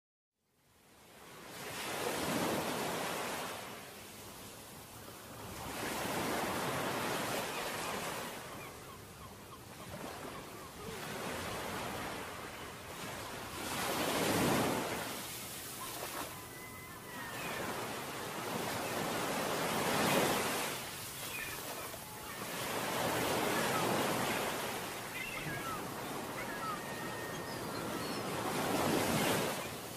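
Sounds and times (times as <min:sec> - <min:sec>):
ocean waves washing onto shore: 0:09.9 - 0:29.9.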